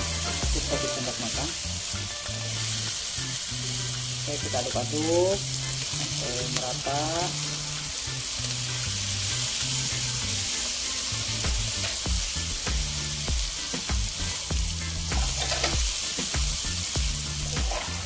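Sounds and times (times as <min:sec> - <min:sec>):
vegetables sizzling in oil: 0:00.0 - 0:18.0
spatula scraping and tapping pan: 0:15.1 - 0:16.4.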